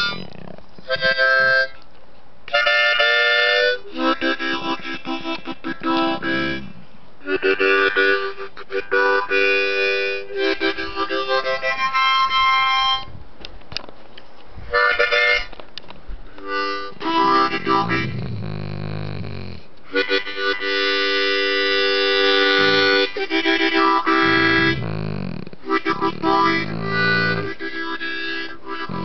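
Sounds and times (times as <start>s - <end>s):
dog humming low: 0.0s - 1.8s, 3.8s - 8.2s, 16.5s - 29.0s
harmonica chords: 0.0s - 1.8s, 2.5s - 13.1s, 14.7s - 15.6s, 16.3s - 29.0s.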